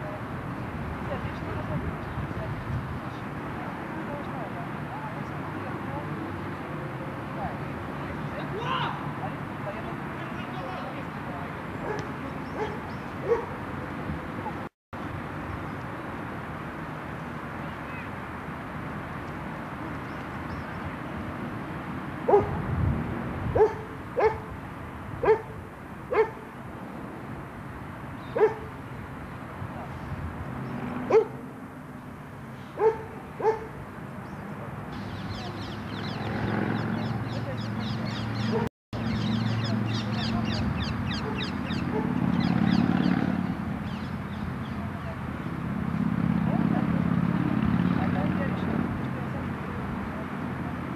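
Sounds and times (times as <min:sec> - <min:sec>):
birds chirping: 0:09.7 - 0:14.7, 0:19.5 - 0:21.0, 0:28.1 - 0:45.6
dog barking: 0:11.8 - 0:13.6, 0:22.3 - 0:22.6, 0:23.6 - 0:24.5, 0:25.2 - 0:26.4, 0:28.4 - 0:28.7, 0:31.1 - 0:31.4, 0:32.8 - 0:33.8, 0:41.2 - 0:42.2.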